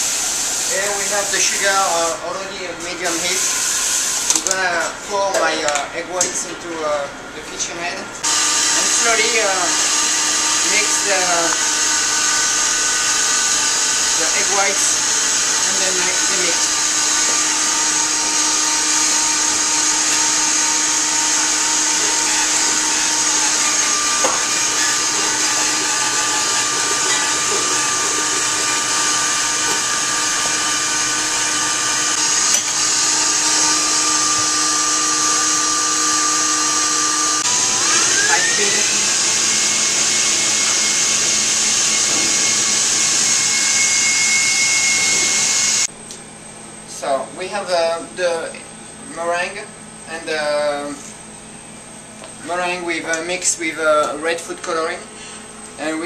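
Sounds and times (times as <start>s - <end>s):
stand mixer whirring: 8.2s - 45.9s.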